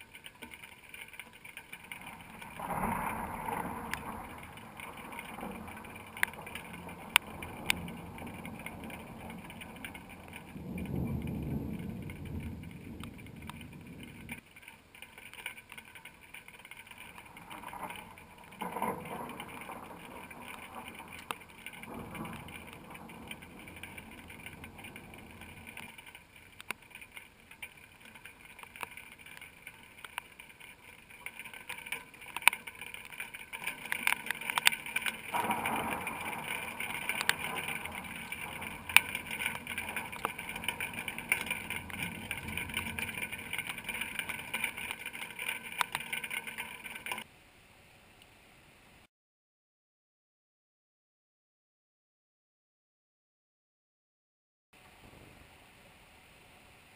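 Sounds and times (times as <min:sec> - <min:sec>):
sharp ticks: 0:00.0 - 0:47.3
thunder rumble: 0:01.6 - 0:14.4, 0:15.8 - 0:47.2.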